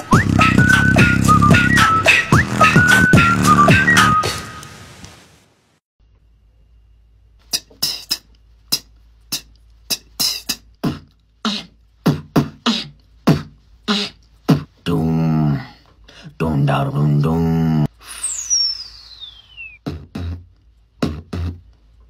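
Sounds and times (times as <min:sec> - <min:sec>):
buzzing beatbox bass: 0:00.0 - 0:04.3, 0:07.5 - 0:14.8, 0:19.8 - 0:21.8
beatboxing drum sounds: 0:00.0 - 0:04.5, 0:07.4 - 0:14.8, 0:19.8 - 0:22.0.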